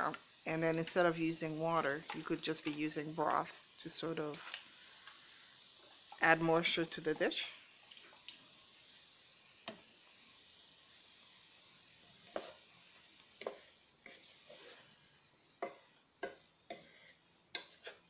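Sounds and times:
wooden spoon scraping a pan: 0.0s - 5.2s, 12.1s - 18.0s
broccoli sizzling in a pan: 0.0s - 18.0s.

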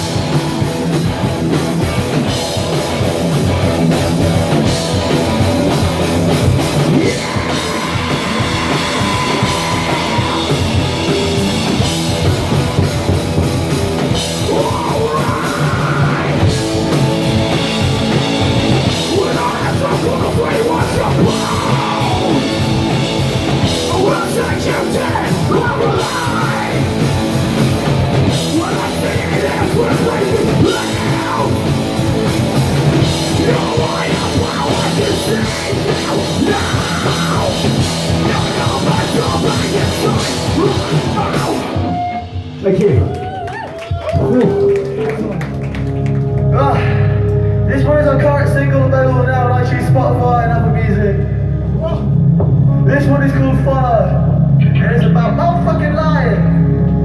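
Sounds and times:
drum kit beat: 0.0s - 46.5s
rock band playing loud: 0.0s - 57.0s
person singing and shouting: 6.0s - 12.8s, 14.1s - 16.9s, 18.7s - 45.1s.

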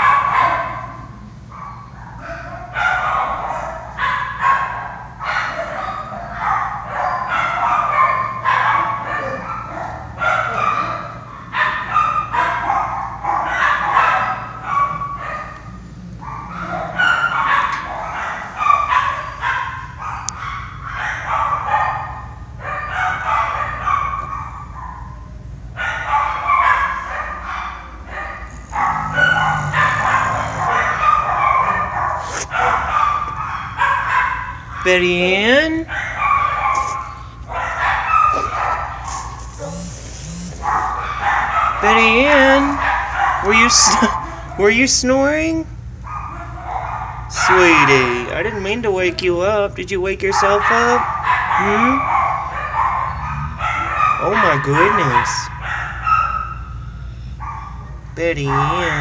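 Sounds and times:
dog snoring: 28.4s - 32.9s, 38.3s - 41.1s.

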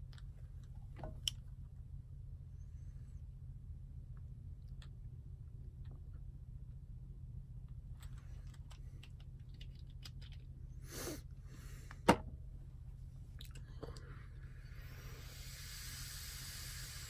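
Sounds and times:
vape hissing on a drag: 10.8s - 11.7s, 14.4s - 17.0s.

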